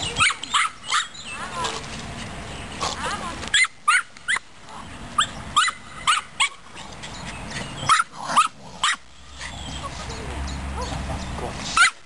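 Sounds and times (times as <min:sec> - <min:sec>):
dog yapping: 0:00.1 - 0:01.8, 0:02.8 - 0:04.4, 0:05.2 - 0:06.9, 0:07.6 - 0:12.0.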